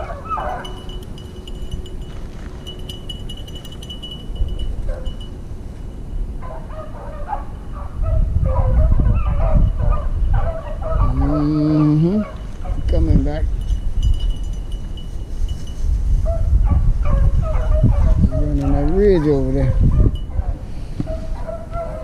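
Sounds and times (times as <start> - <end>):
dogs baying and yelping: 0.0 - 5.4, 6.4 - 12.9, 16.3 - 22.0.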